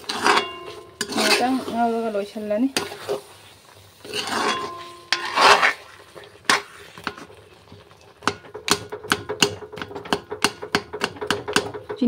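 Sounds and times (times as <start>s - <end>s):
metal spoon scraping wok: 0.0s - 7.3s.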